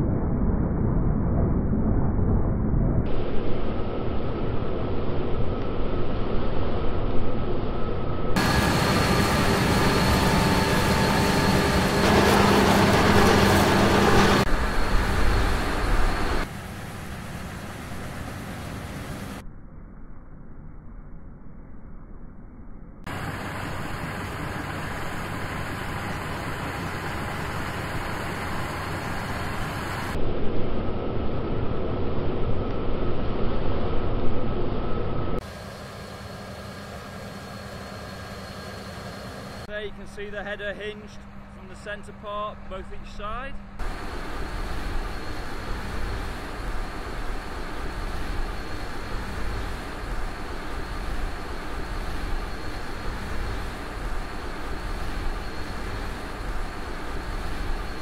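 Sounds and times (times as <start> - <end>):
machine hum with faint whines: 0.0 - 58.0
combine harvester running: 8.4 - 19.4, 23.1 - 30.2, 35.4 - 58.0.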